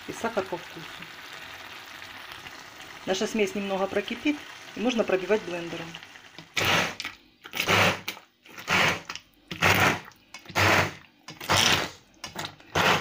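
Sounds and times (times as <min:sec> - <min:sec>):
hand blender motor bursts: 0:06.6 - 0:07.0, 0:07.6 - 0:12.0, 0:12.7 - 0:13.0.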